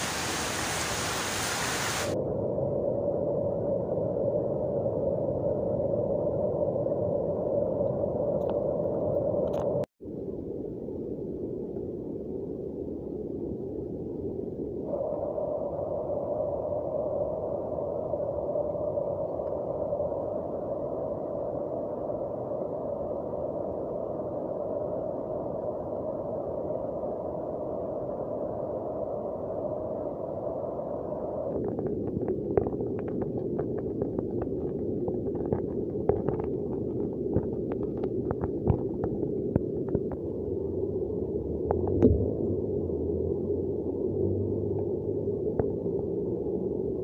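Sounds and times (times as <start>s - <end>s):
heavy rain on foliage: 0.0s - 2.2s.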